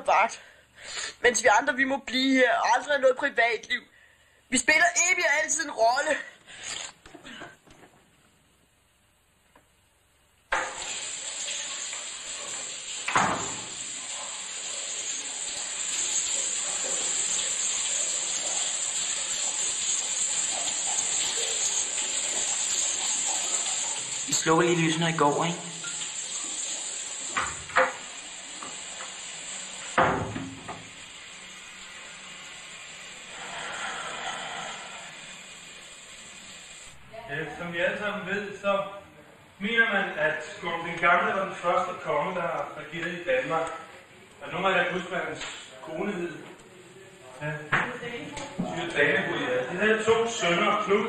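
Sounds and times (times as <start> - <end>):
shower water spraying: 10.5 - 37.0.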